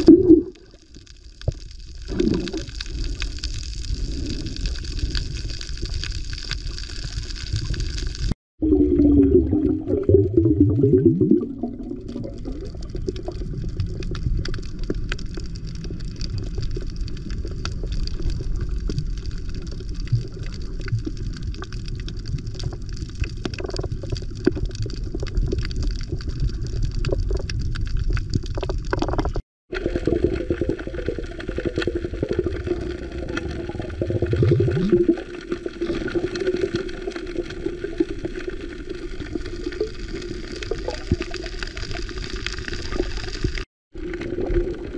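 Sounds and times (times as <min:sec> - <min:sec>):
muffled underwater rushing: 0:00.0 - 0:00.8, 0:07.0 - 0:22.8, 0:28.6 - 0:44.9
underwater clicks and crackles: 0:00.0 - 0:08.4, 0:09.5 - 0:44.9.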